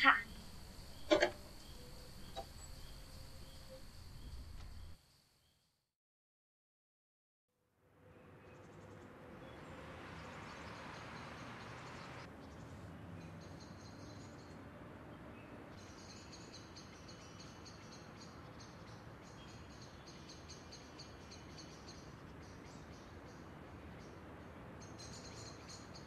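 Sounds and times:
low steady hiss: 0.0s - 5.4s, 7.8s - 13.5s
insects chirping: 0.0s - 5.8s.

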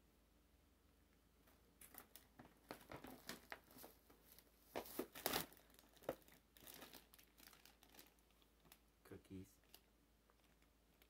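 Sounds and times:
cellophane crinkling: 1.8s - 8.9s, 9.6s - 11.0s.

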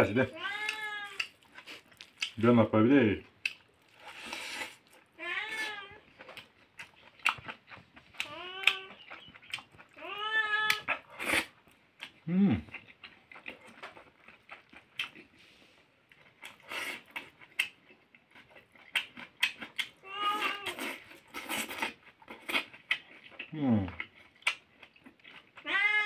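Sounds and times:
cat meowing: 0.2s - 1.3s, 5.2s - 6.0s, 8.2s - 9.0s, 10.0s - 10.9s, 20.0s - 20.8s, 25.6s - 26.0s
eating noises smacking clicks: 6.3s - 9.9s, 18.8s - 20.0s.

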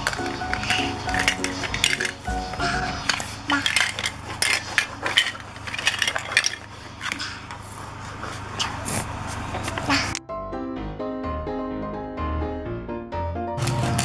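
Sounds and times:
plastic toy pieces clattering: 0.0s - 7.3s, 13.6s - 14.0s.

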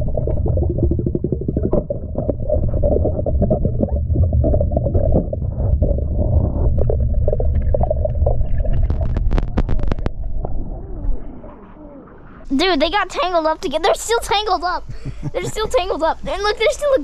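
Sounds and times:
muffled underwater rumble: 0.0s - 12.8s.

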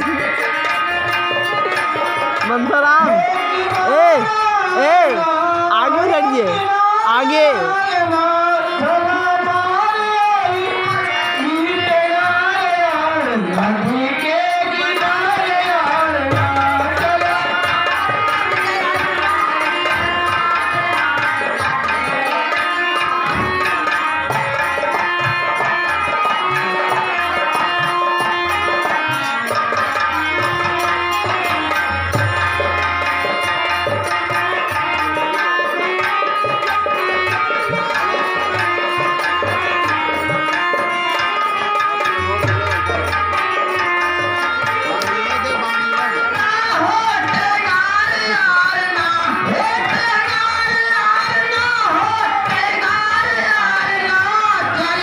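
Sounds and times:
tabla drumming: 0.0s - 55.0s.

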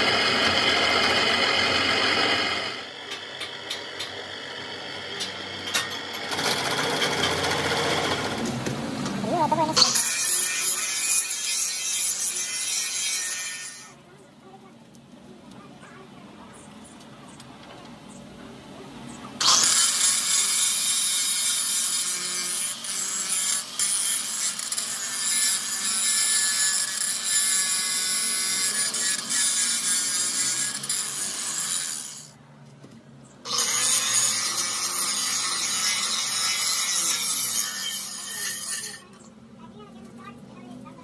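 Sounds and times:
angle grinder grinding steel: 0.0s - 8.6s, 9.2s - 14.0s, 19.4s - 32.4s, 33.5s - 39.3s.

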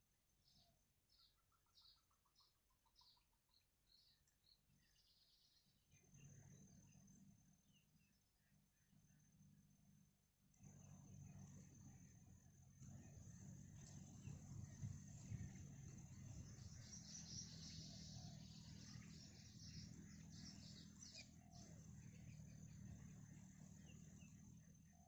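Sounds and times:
faint bird chirps: 0.0s - 25.0s
low outdoor rumble: 5.4s - 25.0s.

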